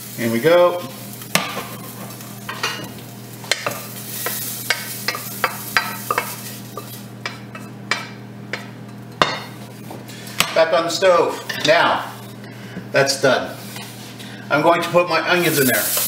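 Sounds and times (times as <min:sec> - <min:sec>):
vegetables sizzling: 0:00.0 - 0:16.0
wooden spatula scraping saucepan: 0:15.0 - 0:16.0.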